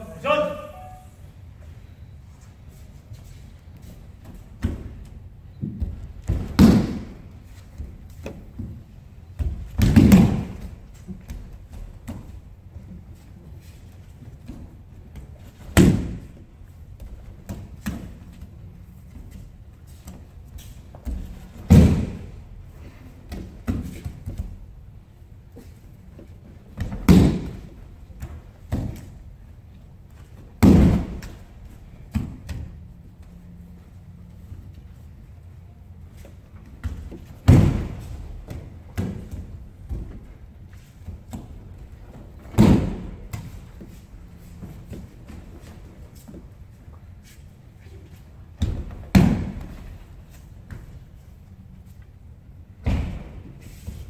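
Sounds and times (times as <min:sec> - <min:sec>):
body thudding on mats: 0:36.7 - 0:40.6.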